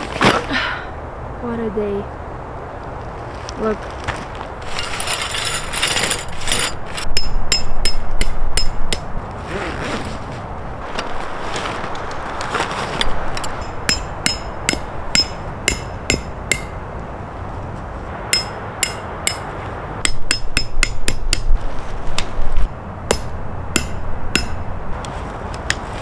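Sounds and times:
hammer striking metal: 7.1 - 9.0, 13.6 - 16.8, 18.3 - 21.5, 23.1 - 24.6.

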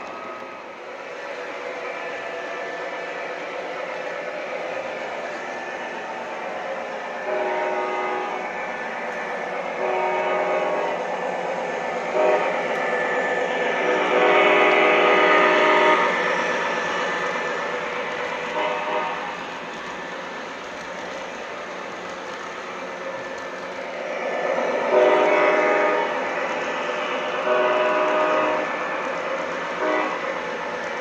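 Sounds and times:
model train engine and wheels: 0.0 - 31.0
model train air horn blasts: 7.2 - 8.5, 9.8 - 11.0, 12.1 - 12.6, 13.8 - 16.2, 18.5 - 19.4, 24.9 - 26.2, 27.4 - 28.7, 29.8 - 30.3.

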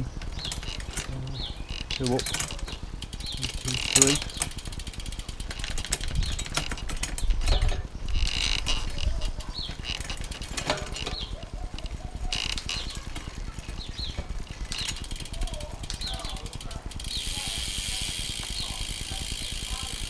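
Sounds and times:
bird chirping: 0.0 - 4.7, 5.6 - 20.0
bike chain clicking over sprockets: 0.0 - 20.0
freehub ratchet buzzing: 0.0 - 20.0.

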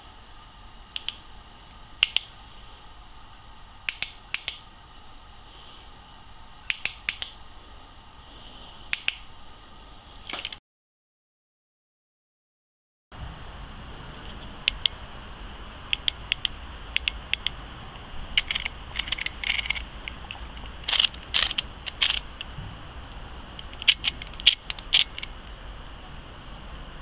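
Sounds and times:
handling clicks and rattles: 18.4 - 22.5, 23.6 - 25.3.

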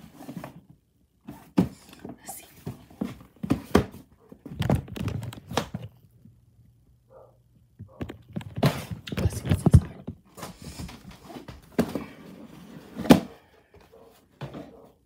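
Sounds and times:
cardboard box knocks and thumps: 2.7 - 5.0.

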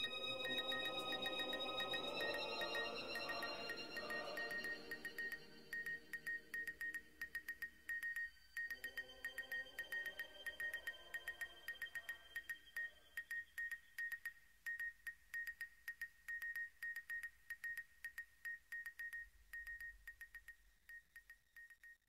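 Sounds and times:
electronic morse code beeping: 0.0 - 14.2.

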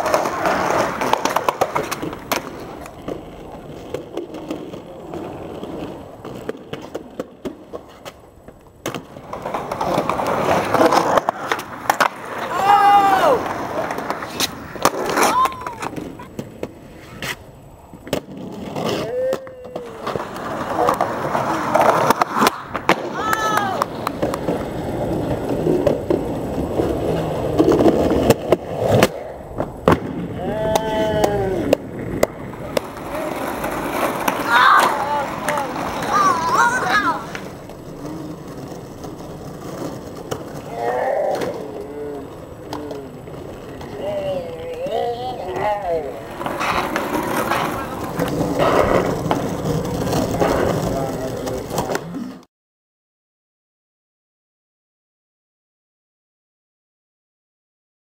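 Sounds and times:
sharp skateboard clacks: 0.0 - 17.4, 18.0 - 26.2, 27.1 - 40.6
skateboard wheels rolling on concrete: 0.0 - 52.5.

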